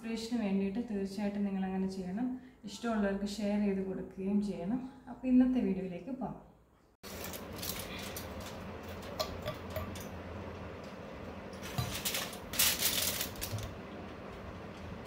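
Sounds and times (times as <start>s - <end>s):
foil rustling: 7.0s - 9.1s, 11.6s - 13.8s.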